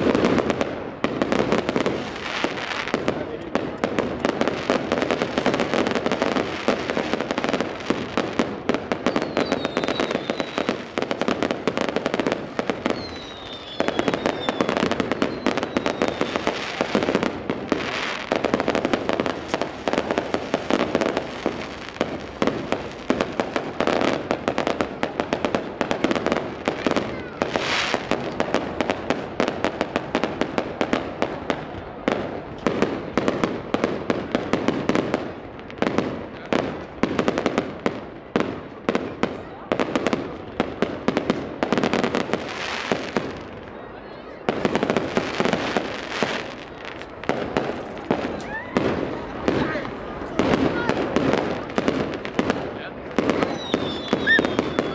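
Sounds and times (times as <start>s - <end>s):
fireworks bangs and crackling: 0.0s - 54.9s
fireworks falling whistles: 8.8s - 18.4s, 26.4s - 28.9s, 53.2s - 54.9s.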